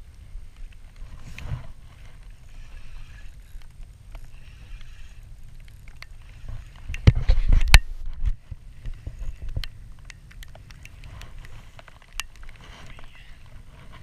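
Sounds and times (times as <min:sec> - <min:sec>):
low wind rumble: 0:00.0 - 0:14.0
water against a boat: 0:00.0 - 0:14.0
fishing reel clicks: 0:02.4 - 0:07.0.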